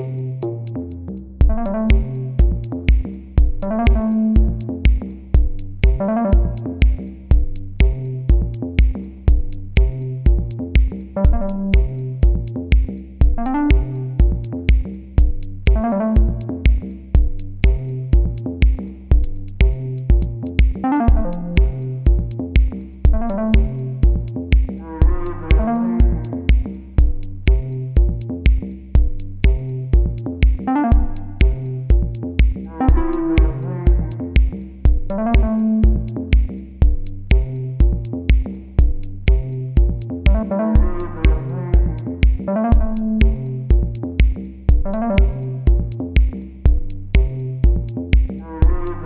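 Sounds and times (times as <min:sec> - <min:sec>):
electronic music with drum-machine beat: 0:00.0 - 0:49.0
synthesizer melody: 0:01.5 - 0:02.7, 0:03.6 - 0:04.7, 0:05.8 - 0:06.9, 0:11.2 - 0:12.1, 0:13.4 - 0:14.5, 0:15.7 - 0:16.8, 0:20.8 - 0:22.0, 0:23.1 - 0:24.2, 0:24.8 - 0:26.6, 0:30.6 - 0:31.8, 0:32.7 - 0:34.5, 0:35.1 - 0:36.2, 0:40.3 - 0:43.7.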